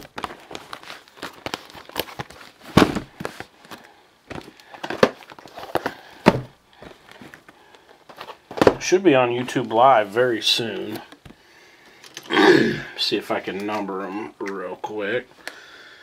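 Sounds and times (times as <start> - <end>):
handling noise: 0.0 - 11.4
cardboard boxes knocking on table: 2.7 - 3.1, 6.2 - 6.5.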